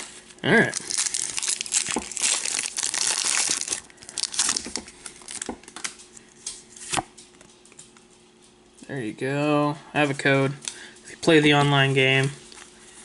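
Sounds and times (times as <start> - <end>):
foil wrapper crinkling: 0.0 - 7.3.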